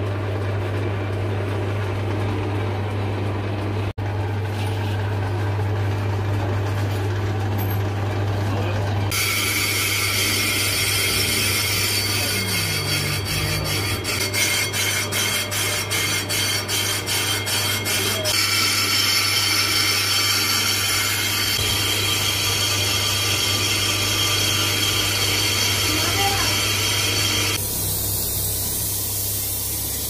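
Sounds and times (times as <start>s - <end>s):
lathe motor hum: 5.6s - 30.0s
cutting tool scraping spinning drum: 9.1s - 30.0s.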